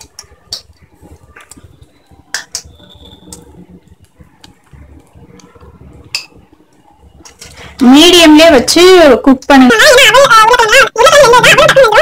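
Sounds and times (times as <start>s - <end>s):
oil popping and crackling: 0.0s - 7.8s.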